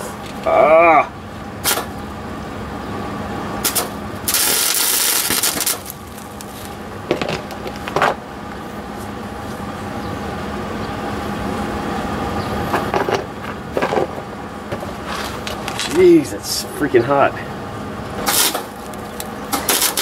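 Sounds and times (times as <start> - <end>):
steady hum: 0.0 - 20.0
welding arc crackling: 3.6 - 6.8, 18.2 - 20.0.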